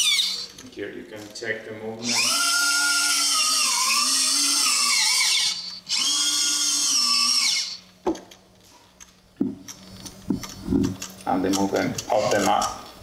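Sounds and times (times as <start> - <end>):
servo motor whining: 0.0 - 0.7, 2.0 - 8.0, 9.7 - 12.8.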